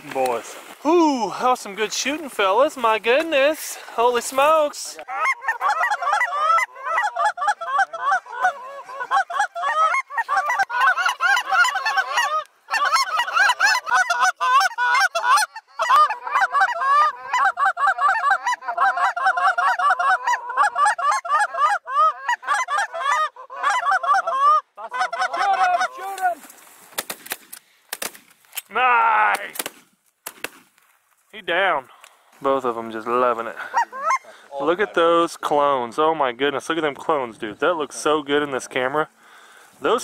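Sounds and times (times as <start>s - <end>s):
geese honking and cackling: 1.4s - 26.9s, 32.0s - 36.2s.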